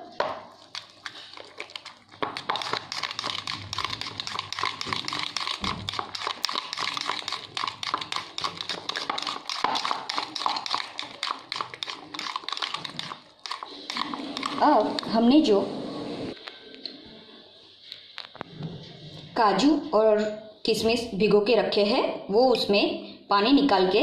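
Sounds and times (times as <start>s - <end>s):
whisk tapping against bowl: 0.7s - 15.2s.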